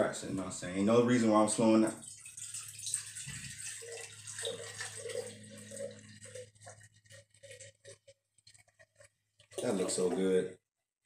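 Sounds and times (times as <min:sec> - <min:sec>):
drink pouring into glass: 0:02.0 - 0:10.3.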